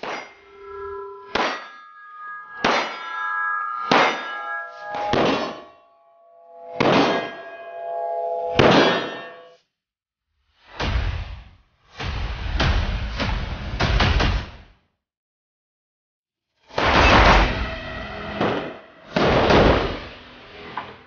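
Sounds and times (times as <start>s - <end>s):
metallic ringing: 0.0s - 9.6s.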